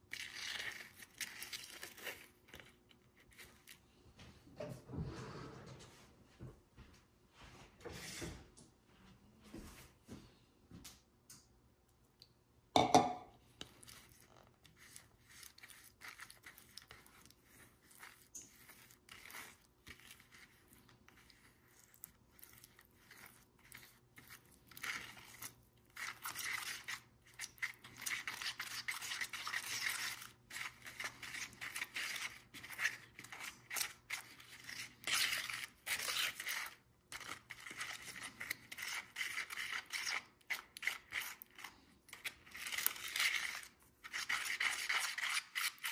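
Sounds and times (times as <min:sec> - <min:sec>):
plastic spoon scraping grout in tub: 0:00.0 - 0:03.9, 0:13.6 - 0:45.9.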